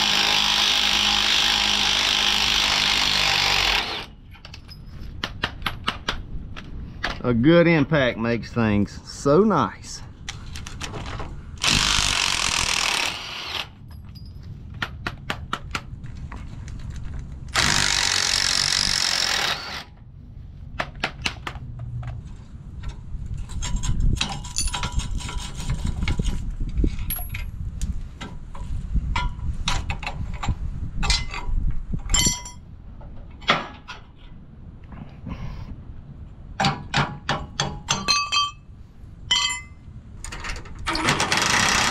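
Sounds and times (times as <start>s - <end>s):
metal clinks and knocks: 4.3s - 5.9s, 13.8s - 14.8s, 22.8s - 27.6s, 29.1s - 32.7s, 36.6s - 38.7s, 39.3s - 40.7s.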